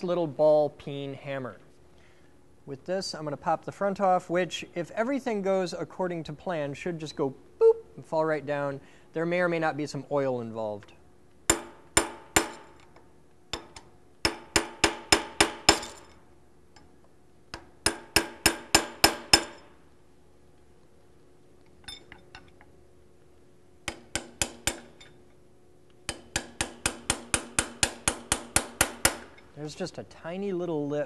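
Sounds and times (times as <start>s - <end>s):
hammer tapping on metal: 23.9s - 25.1s, 26.1s - 29.4s.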